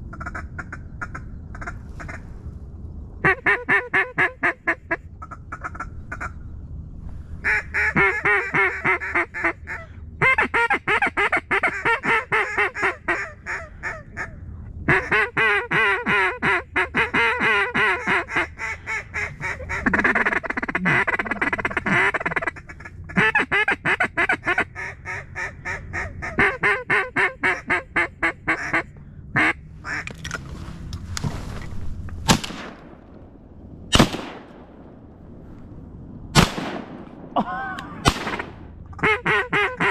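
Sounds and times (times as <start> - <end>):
duck call quacks: 3.2 - 6.3, 7.4 - 30.1, 39.0 - 39.9
shotgun bangs: 32.2 - 33.2, 33.9 - 35.0, 36.4 - 38.7.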